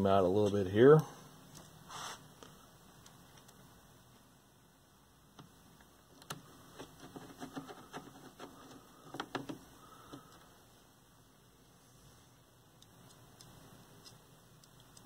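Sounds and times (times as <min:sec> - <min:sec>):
hands handling wiring clicks: 0:09.0 - 0:10.4.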